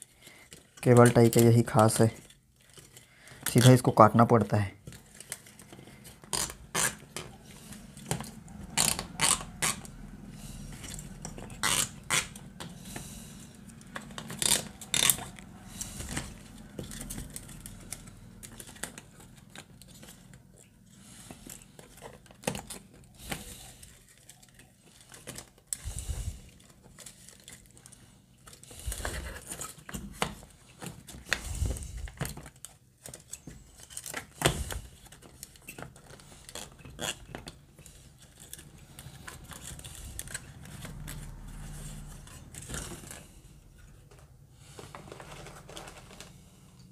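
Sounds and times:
cable ties zipping tight: 11.5 - 12.4.

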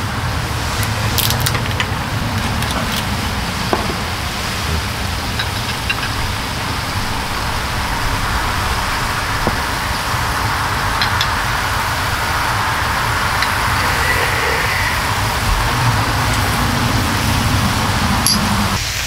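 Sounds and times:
low rumble: 1.4 - 18.0
pork sizzling in a pan: 9.5 - 15.7.

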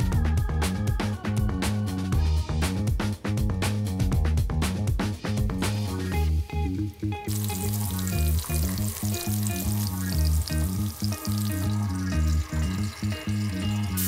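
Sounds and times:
background music: 0.0 - 14.0
vegetables sizzling in a pan: 7.3 - 14.0.

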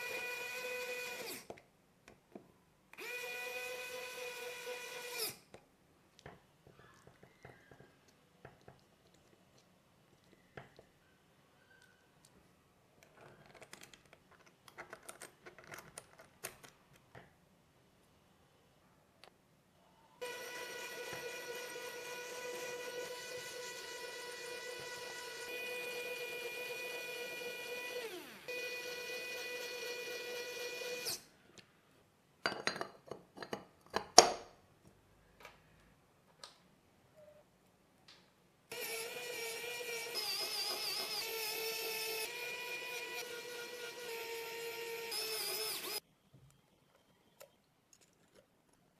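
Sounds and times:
electric screwdriver whining: 0.0 - 1.5, 3.0 - 5.4, 20.2 - 31.2, 38.7 - 46.0.

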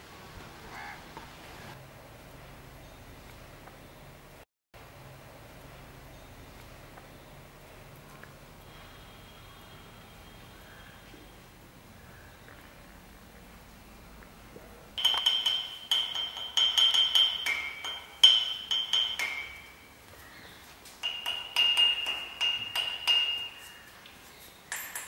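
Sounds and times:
hard objects clinking: 15.0 - 19.9, 24.7 - 25.0.

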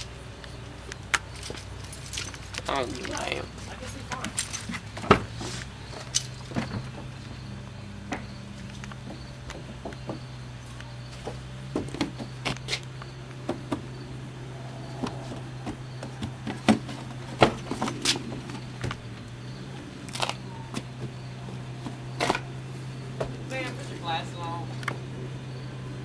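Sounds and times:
steady low hum: 0.0 - 26.0
knocks and clicks on car body: 8.9 - 10.4, 11.2 - 12.7, 13.4 - 13.9.

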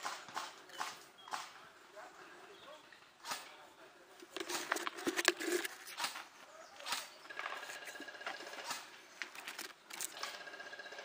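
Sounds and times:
sharp clicks: 0.0 - 1.6
airsoft guns firing in bursts: 6.8 - 9.0, 10.1 - 11.0.

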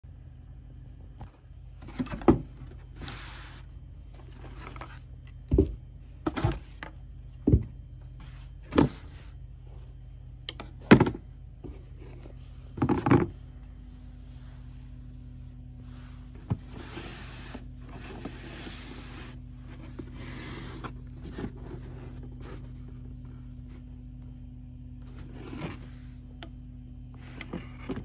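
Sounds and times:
cardboard scraping rustle: 1.8 - 6.9, 16.2 - 23.8, 25.0 - 26.1.

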